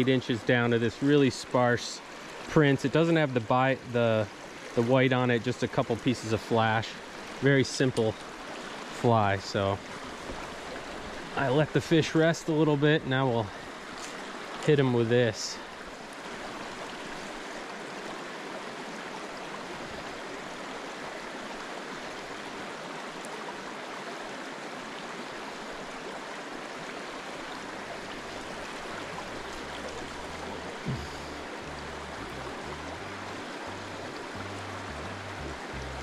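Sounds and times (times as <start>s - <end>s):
stream flowing over rocks: 0.0s - 36.0s
low background music: 29.2s - 36.0s.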